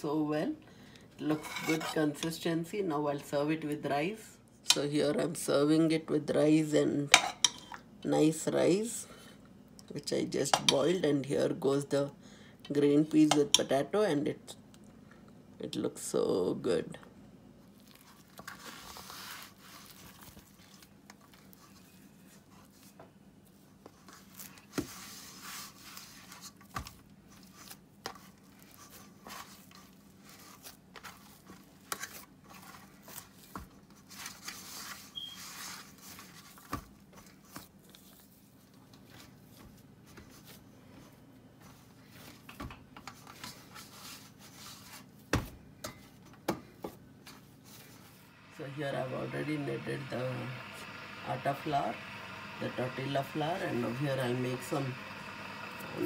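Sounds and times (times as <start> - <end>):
faint steady hum: 0.0 - 56.0
spoon scraping a plate: 1.3 - 2.2
hands kneading dough in steel bowl: 17.7 - 42.5.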